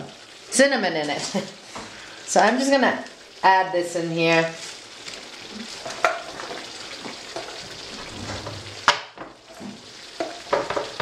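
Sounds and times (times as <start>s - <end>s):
sauce sizzling in a skillet: 0.0s - 11.0s.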